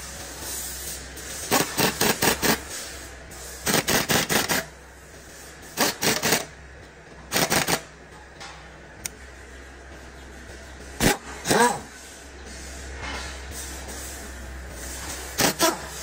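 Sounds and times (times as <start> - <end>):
pneumatic impact wrench hammering: 1.4 - 2.8, 3.6 - 4.8, 5.7 - 6.5, 7.3 - 7.9, 11.0 - 11.8, 15.2 - 16.0.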